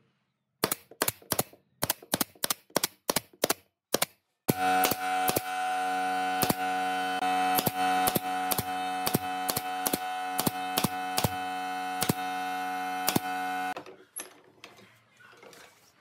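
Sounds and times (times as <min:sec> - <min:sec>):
nail gun firing: 0:00.6 - 0:05.6, 0:06.3 - 0:06.8, 0:07.5 - 0:13.8.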